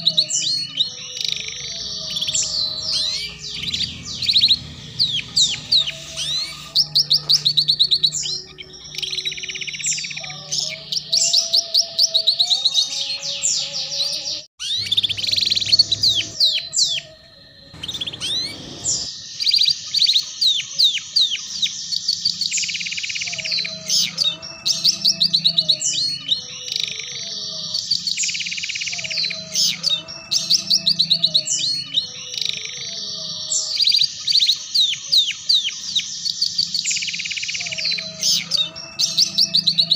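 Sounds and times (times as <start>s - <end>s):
canary singing fast trills: 0.0s - 39.9s.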